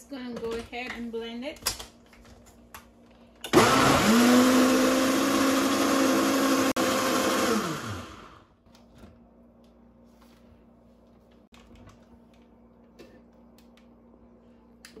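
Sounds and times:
blender motor blending: 3.5s - 8.4s.

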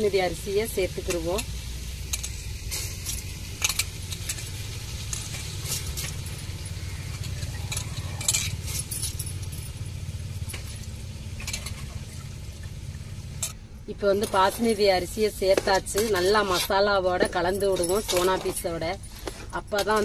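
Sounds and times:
ladle scraping metal pot: 11.4s - 12.2s, 14.2s - 20.0s.

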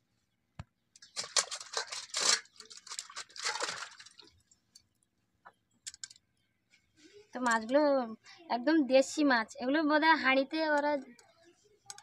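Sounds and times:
water splashing in steel bowl: 1.2s - 4.4s.

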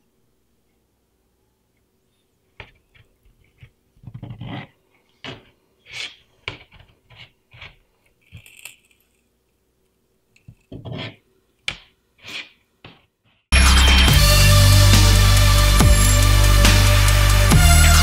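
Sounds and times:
claws and shell scraping floor: 2.6s - 9.4s, 10.4s - 13.4s.

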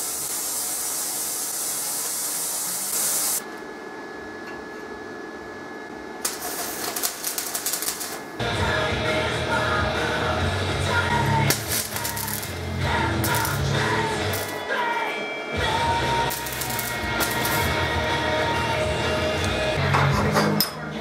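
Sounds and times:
loud steady hiss: 0.0s - 3.4s, 11.2s - 14.6s, 15.8s - 19.4s
electric arc welding crackle: 0.0s - 3.5s, 6.2s - 8.4s, 11.2s - 14.6s, 15.8s - 19.4s.

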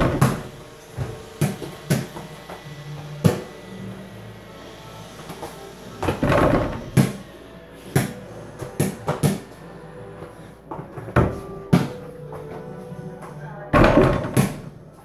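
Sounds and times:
ball bouncing on hard floor: 0.0s - 2.3s, 8.0s - 9.5s, 10.7s - 12.0s, 13.8s - 14.7s
ball knocking against hoop: 0.0s - 2.3s, 8.0s - 9.5s, 11.1s - 12.0s, 13.8s - 14.7s.

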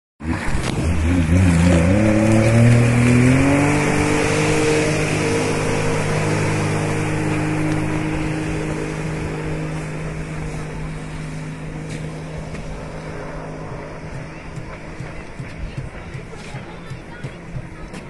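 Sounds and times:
jet ski engine revving: 0.2s - 18.0s.

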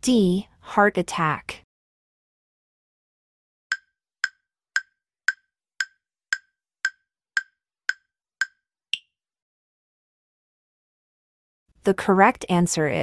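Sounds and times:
countdown timer ticks: 3.7s - 9.1s.

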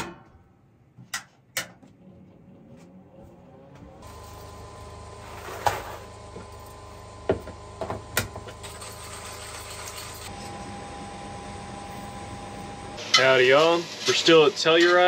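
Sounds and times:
steady background hum: 0.0s - 15.0s
coffee beans poured into grinder: 8.6s - 10.3s.

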